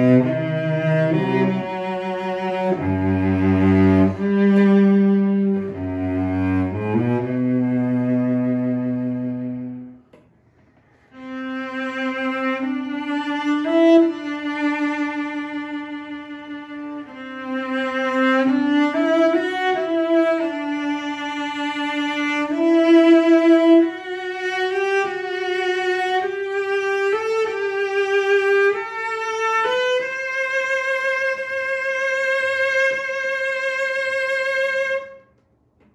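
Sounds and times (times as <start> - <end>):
cello bowed slow melody: 0.0 - 10.3, 11.0 - 35.2.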